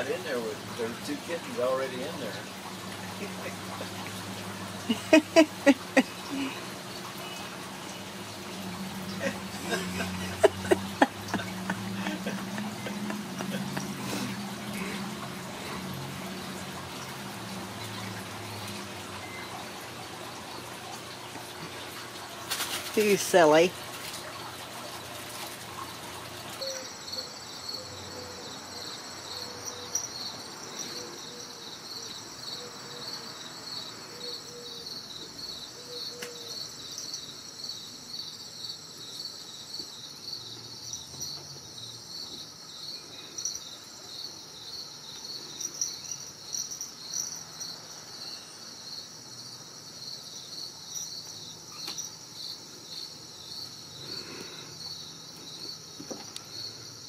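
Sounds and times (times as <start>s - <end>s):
insect chirping: 0.0s - 19.7s, 26.5s - 57.0s.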